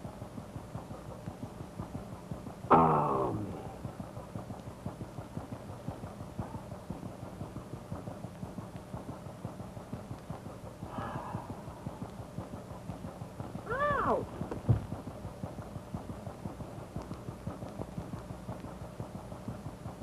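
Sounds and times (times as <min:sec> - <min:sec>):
boat engine throbbing: 0:00.1 - 0:20.0
short vocal sound: 0:02.7 - 0:03.7.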